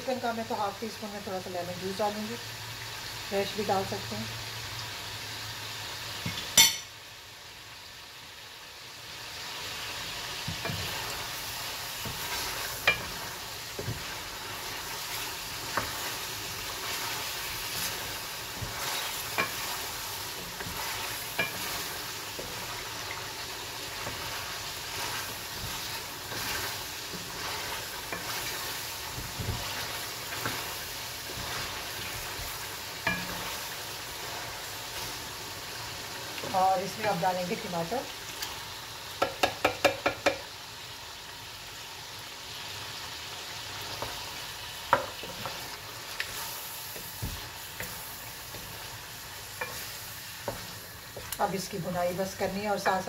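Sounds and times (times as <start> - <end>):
chicken sizzling in oil: 0.0 - 53.0
wooden spoon knocking on pan: 39.2 - 40.5, 44.9 - 45.6.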